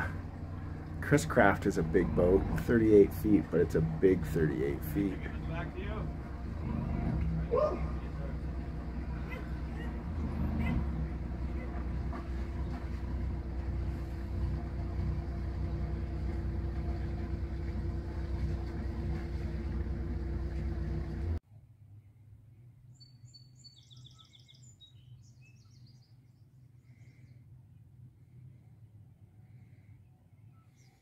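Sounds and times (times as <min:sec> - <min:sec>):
motorboat engines rumbling: 0:00.0 - 0:21.4
songbird singing: 0:22.8 - 0:27.4, 0:30.0 - 0:31.0.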